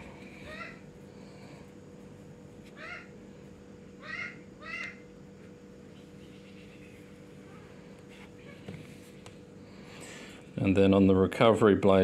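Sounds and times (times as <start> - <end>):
low background hum: 0.0 - 12.0
animal calling: 2.8 - 3.2, 4.0 - 5.1, 5.9 - 7.8.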